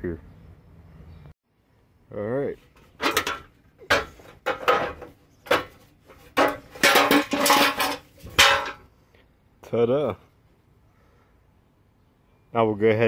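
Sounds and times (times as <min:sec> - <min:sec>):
metal bar clanking and scraping: 0:02.8 - 0:08.9.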